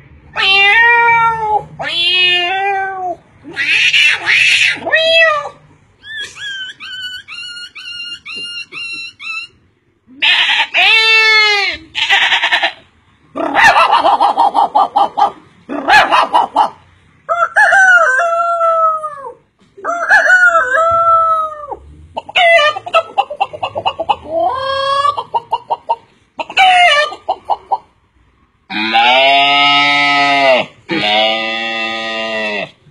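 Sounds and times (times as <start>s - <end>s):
man imitating rooster and hens: 13.3s - 25.7s, 26.4s - 27.7s, 28.7s - 32.8s.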